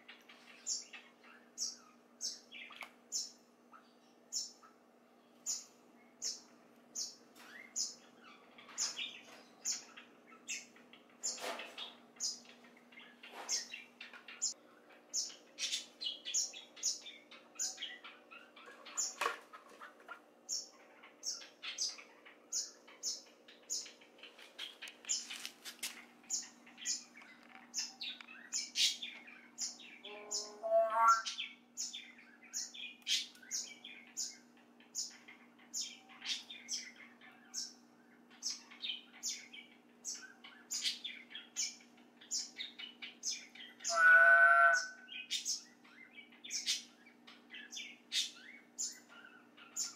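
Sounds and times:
lower rising bird call: 30.0s - 31.4s, 43.9s - 45.1s
waterhens chirping: 43.7s - 45.1s.

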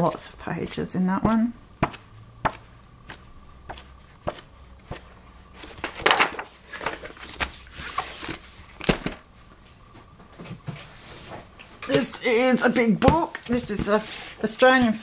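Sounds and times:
book pages flipping: 3.0s - 9.2s
paper rustling: 5.6s - 9.2s.

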